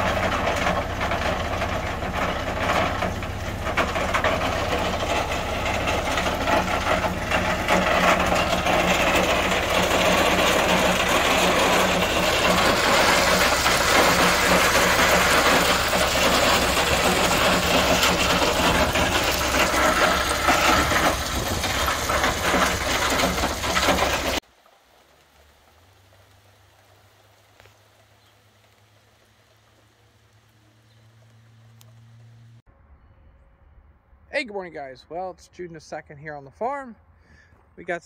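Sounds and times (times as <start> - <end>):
diesel truck engine running: 0.0 - 24.4
crushed stone pouring: 0.0 - 28.0.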